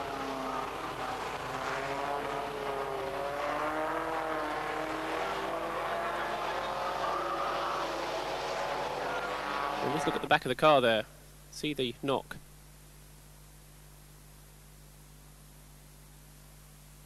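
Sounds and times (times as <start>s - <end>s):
racing car engines: 0.0s - 10.6s.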